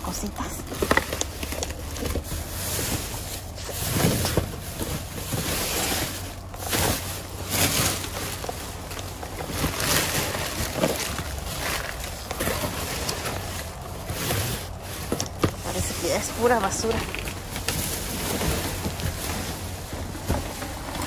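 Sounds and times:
plastic and cardboard rustling: 0.0s - 21.0s.

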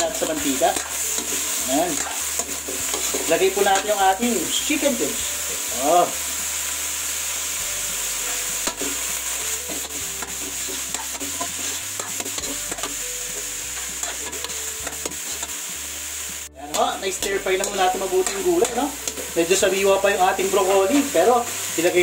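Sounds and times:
metal spatula scraping wok: 0.0s - 22.0s
vegetables sizzling in oil: 0.0s - 22.0s.

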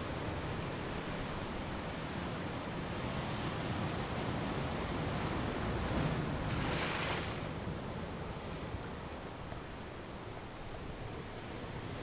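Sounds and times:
ocean surf washing against rocks: 0.0s - 9.8s
wave breaking: 5.8s - 7.6s.

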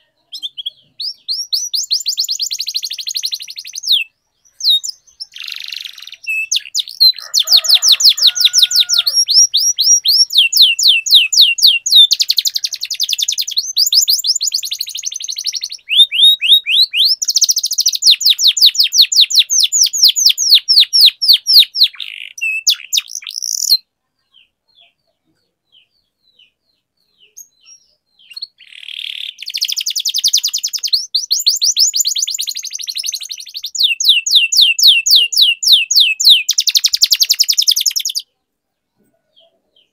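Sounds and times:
canary singing trills: 0.0s - 39.9s.

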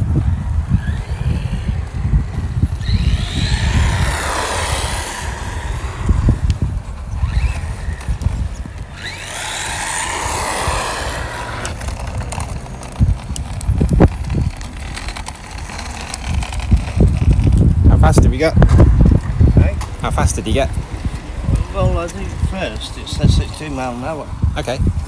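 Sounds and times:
wind buffeting microphone: 0.0s - 25.0s
rc car motor whine: 0.1s - 18.4s.

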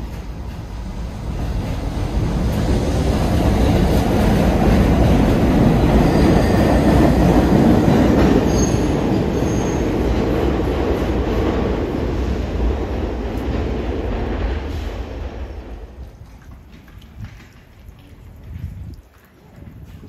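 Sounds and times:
train wheels rumbling on rails: 0.0s - 20.0s
high wheel squeals: 6.0s - 7.0s, 8.5s - 10.0s.

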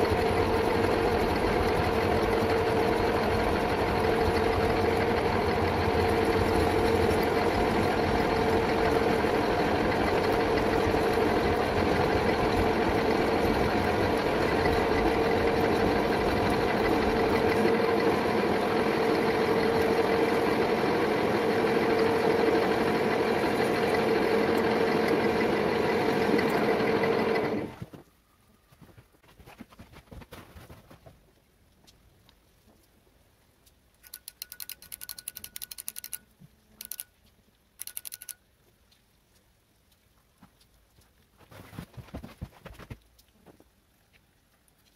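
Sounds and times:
metal lathe running with whine: 0.0s - 27.8s.

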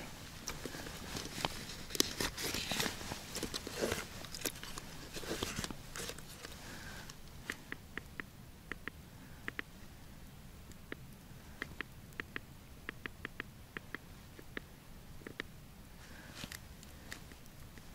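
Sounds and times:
clothing rustling: 0.0s - 7.1s.

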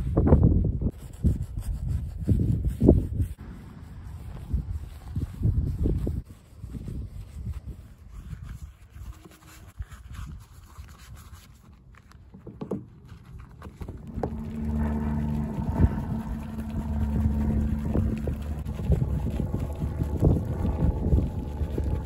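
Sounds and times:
wind rumbling on microphone: 0.0s - 11.8s, 12.5s - 22.0s
brush scrubbing car paint: 0.9s - 22.0s
mechanical motor hum: 13.8s - 22.0s.

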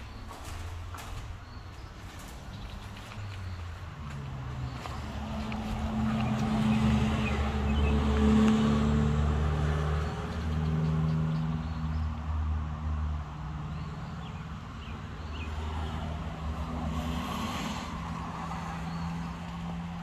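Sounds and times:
vehicle engine rumbling: 0.0s - 12.1s.

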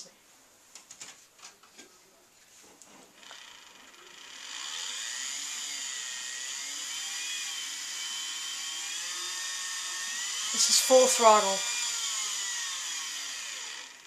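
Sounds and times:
small electric motor whining: 3.2s - 14.0s.

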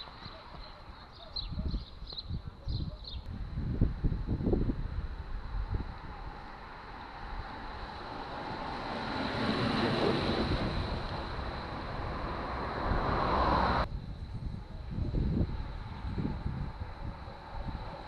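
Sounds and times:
wind rumble on microphone: 0.0s - 18.0s
bicycles rushing past: 3.9s - 14.3s.

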